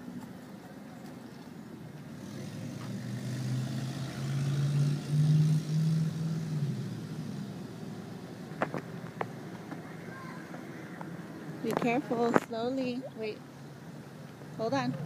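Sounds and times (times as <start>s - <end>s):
vehicle engine passing by: 2.1s - 12.3s.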